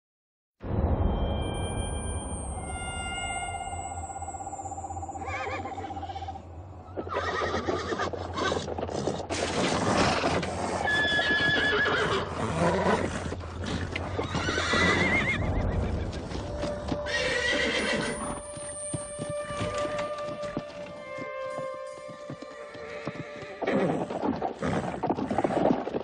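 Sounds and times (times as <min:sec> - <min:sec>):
horses whinnying: 0:05.2 - 0:16.3, 0:17.1 - 0:18.4, 0:22.7 - 0:26.0
hoofbeats clattering: 0:12.8 - 0:26.0.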